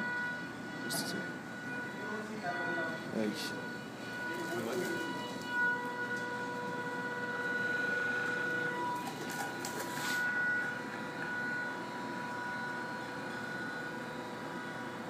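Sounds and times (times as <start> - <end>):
motor flywheel whine: 0.0 - 15.0.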